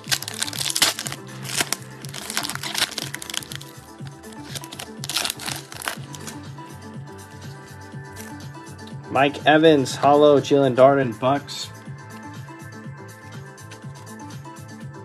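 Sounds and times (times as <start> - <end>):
foil wrapper tearing and crinkling: 0.0 - 6.4
background music: 0.0 - 15.0.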